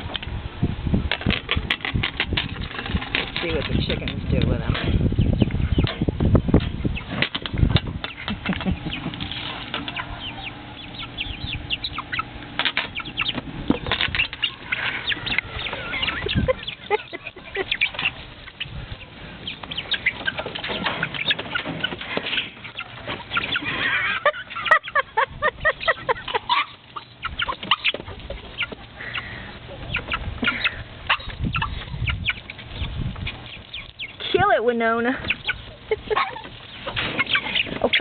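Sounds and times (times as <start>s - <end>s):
chickens clucking and squawking: 0.0s - 38.0s
chickens scrambling: 0.0s - 38.0s
wings flapping: 12.1s - 24.8s.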